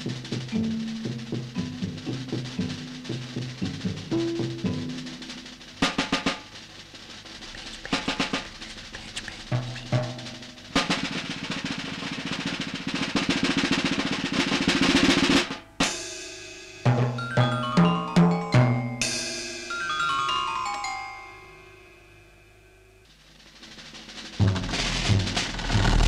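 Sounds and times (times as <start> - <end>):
pitched percussion notes: 0.0 - 12.4, 15.8 - 26.0
drum hits: 0.0 - 16.0, 23.3 - 26.0
snare drum roll: 0.0 - 18.3, 23.1 - 26.0.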